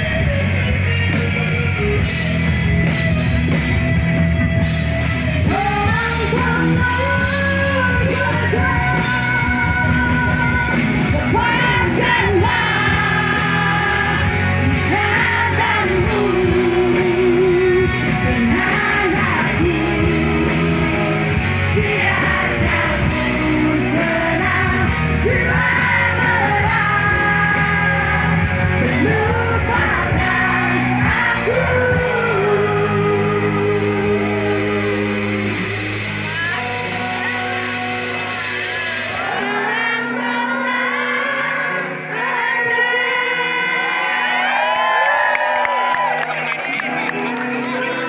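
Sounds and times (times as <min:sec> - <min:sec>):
live rock band: 0:00.0 - 0:48.0
woman singing: 0:05.4 - 0:21.2, 0:21.8 - 0:35.2.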